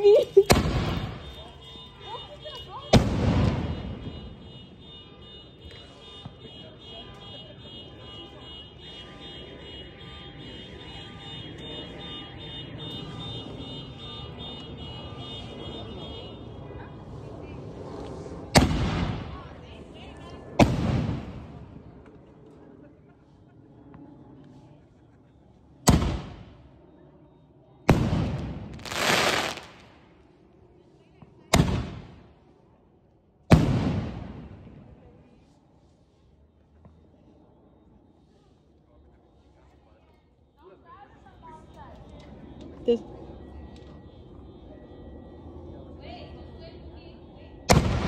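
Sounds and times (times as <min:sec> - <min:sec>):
firework stars crackling: 0:00.0 - 0:01.8, 0:27.9 - 0:30.3
firework shell bang: 0:00.5 - 0:01.2
rapid electronic alarm beeping: 0:00.8 - 0:03.0, 0:07.4 - 0:16.7, 0:40.2 - 0:47.7
steady low rumble: 0:15.4 - 0:28.8, 0:41.3 - 0:48.0.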